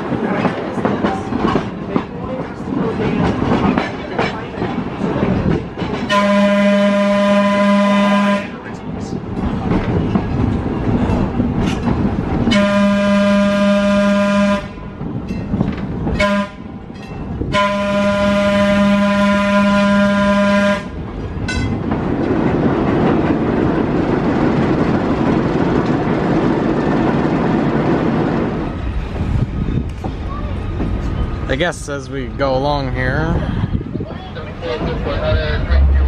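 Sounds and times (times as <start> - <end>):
rail car rumbling on track: 0.0 - 36.0
train air horn: 6.1 - 8.6, 12.5 - 14.8, 16.2 - 16.7, 17.5 - 20.9.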